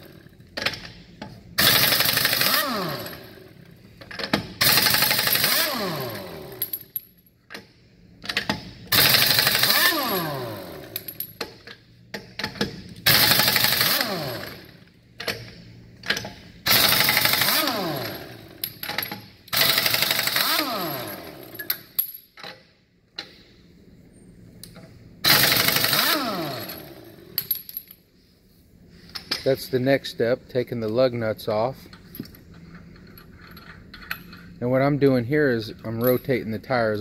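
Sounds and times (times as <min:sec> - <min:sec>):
air impact wrench hammering: 0:01.6 - 0:03.4, 0:04.2 - 0:06.8, 0:08.3 - 0:11.6, 0:12.2 - 0:15.5, 0:16.1 - 0:22.0, 0:25.2 - 0:27.5.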